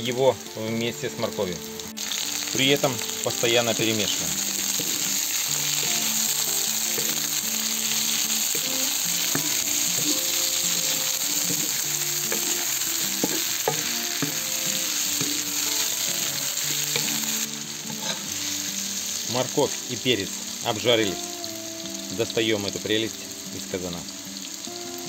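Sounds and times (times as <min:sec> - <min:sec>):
vegetables sizzling in hot oil: 0:00.0 - 0:25.0
wooden spatula scraping metal pot: 0:04.6 - 0:17.3.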